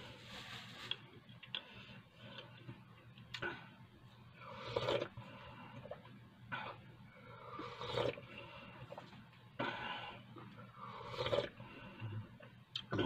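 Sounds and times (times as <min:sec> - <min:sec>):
person slurping tea: 0:04.5 - 0:05.2, 0:07.5 - 0:08.2, 0:10.8 - 0:11.6.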